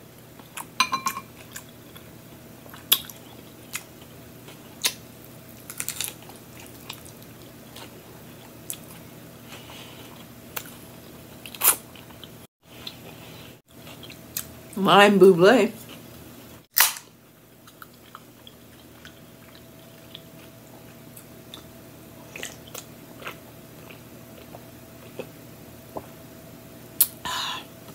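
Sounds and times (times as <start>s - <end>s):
crisp bites and chewing: 4.8s - 7.3s.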